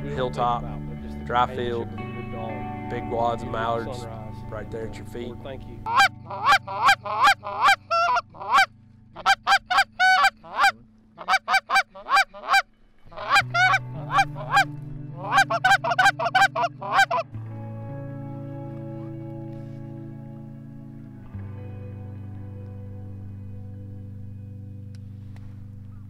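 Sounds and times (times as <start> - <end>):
soft background music: 0.0 - 26.0
duck call quacks: 5.9 - 17.2.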